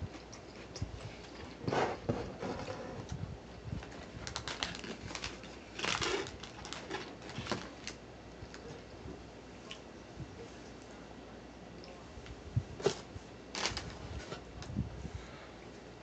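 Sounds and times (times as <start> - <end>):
food packaging crinkling: 3.8 - 8.7, 12.8 - 14.4.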